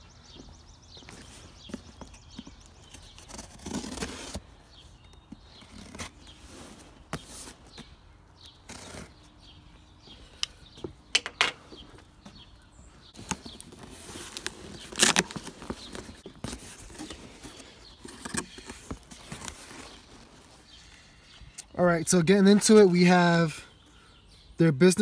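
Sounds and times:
cardboard and tape tearing: 0:02.8 - 0:04.5, 0:05.5 - 0:07.5, 0:08.6 - 0:09.2, 0:13.2 - 0:20.6.

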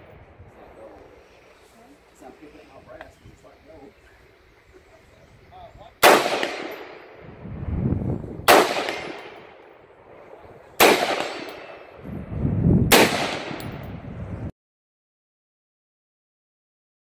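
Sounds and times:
rifle shots with echo: 0:06.0 - 0:07.2, 0:08.4 - 0:12.0, 0:12.9 - 0:13.9.

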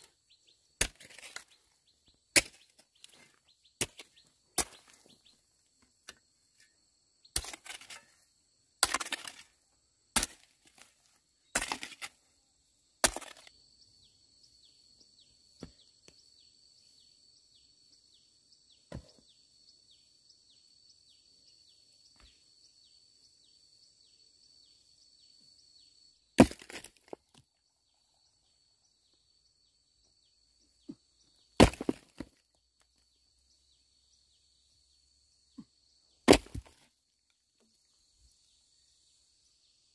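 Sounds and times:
chopping strikes on wood: 0:18.9 - 0:19.2, 0:26.4 - 0:27.2, 0:31.6 - 0:32.4, 0:36.3 - 0:36.8.

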